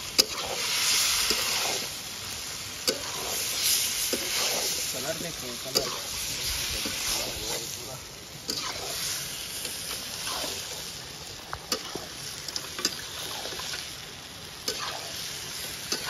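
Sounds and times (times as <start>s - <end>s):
steady hiss: 0.0s - 16.0s
metal spatula scraping pan: 8.5s - 9.1s.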